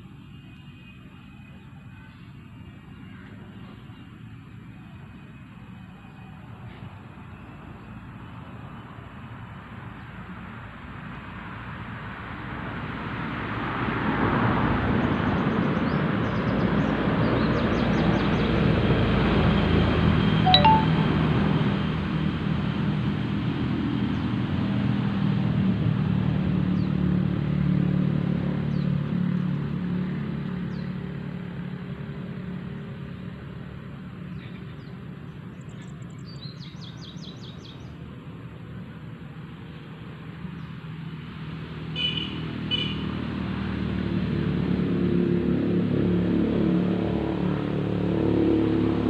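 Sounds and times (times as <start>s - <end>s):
bird chirps: 20.5s - 21.0s.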